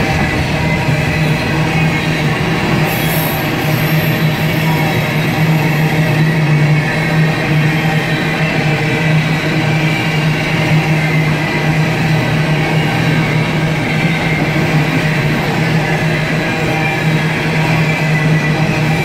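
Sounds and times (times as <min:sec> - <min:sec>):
low hum: 0:00.0 - 0:03.6
train wheels running on rails: 0:00.0 - 0:19.0.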